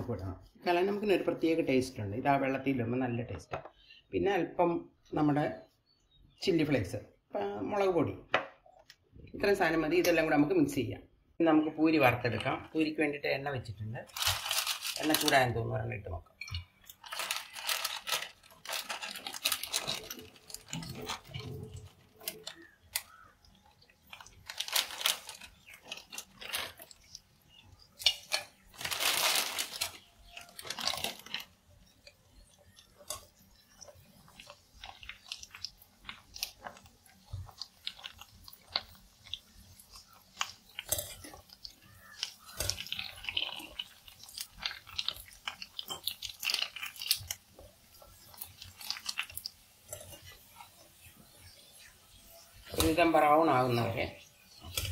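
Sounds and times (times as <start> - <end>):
food deep-frying in hot oil: 11.8 - 54.9.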